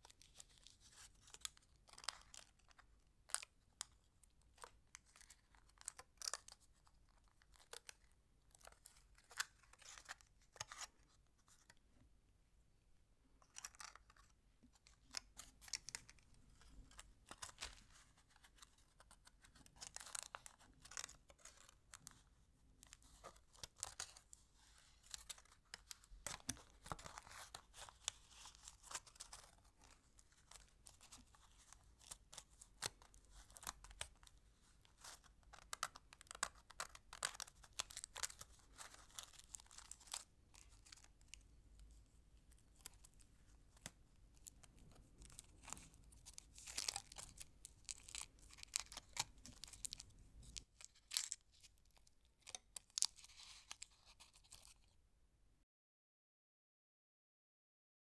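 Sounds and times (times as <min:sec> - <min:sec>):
candy wrappers crinkling: 0:00.0 - 0:11.7, 0:13.4 - 0:54.9.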